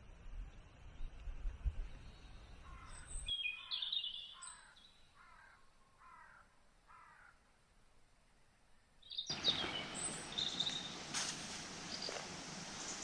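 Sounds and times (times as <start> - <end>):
birds calling: 1.9 - 7.4, 9.0 - 13.0
high bird chirps: 2.0 - 5.0, 9.0 - 11.0.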